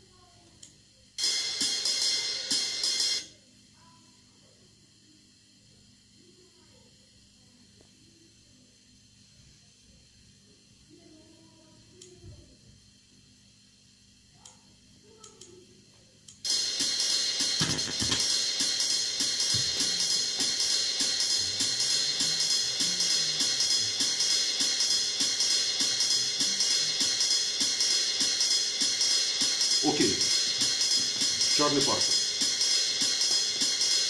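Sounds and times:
drum track with busy hi-hat: 1.2s - 3.2s, 16.4s - 34.0s.

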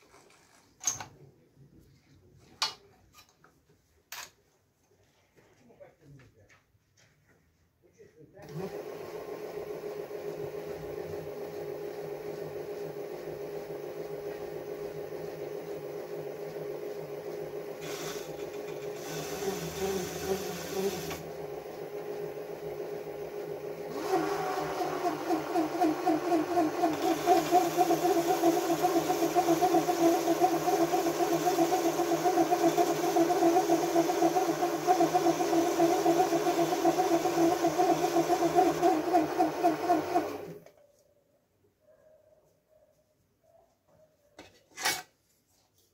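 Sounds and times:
metal lathe running: 17.8s - 22.6s, 23.6s - 40.5s.

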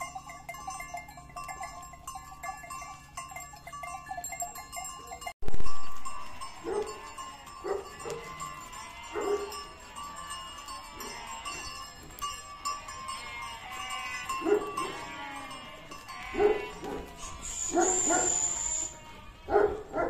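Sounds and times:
sheep bleating: 6.2s - 20.0s.

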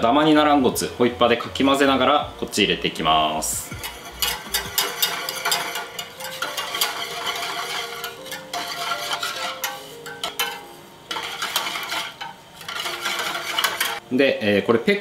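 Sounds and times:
whisk scraping in a metal saucepan: 3.4s - 14.0s.

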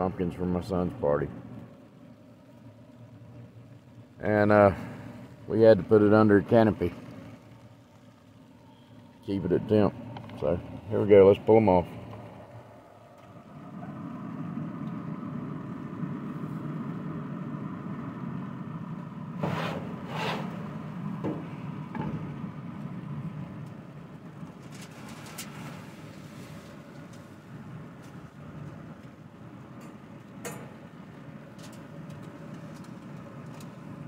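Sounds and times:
steady low rumble: 0.0s - 34.0s
pan scraping across grill grate: 19.4s - 21.6s
grill lid clunks: 19.4s - 22.4s.

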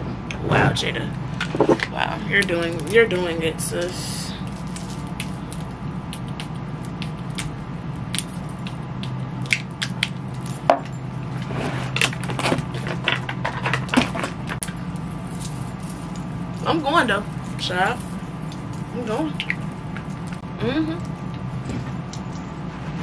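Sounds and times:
steady low hum: 0.0s - 23.0s
metal bracelets clinking: 3.7s - 7.5s, 9.4s - 11.1s, 14.6s - 20.4s.

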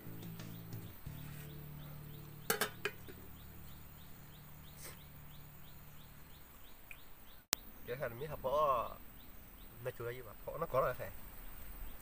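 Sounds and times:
faint high chirps: 0.0s - 10.2s
sharp knocks: 2.4s - 3.2s.

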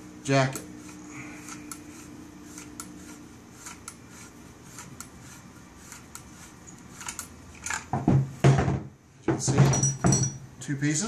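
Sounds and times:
metal clicks and scrapes: 0.5s - 7.9s.

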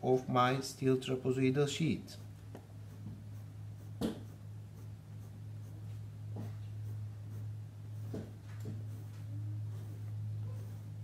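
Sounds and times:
steady low hum: 0.0s - 11.0s
pencil scratching on paper: 2.0s - 11.0s.

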